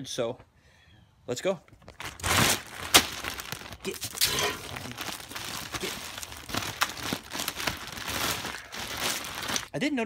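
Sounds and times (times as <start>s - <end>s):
plastic bag crinkling: 1.8s - 9.8s.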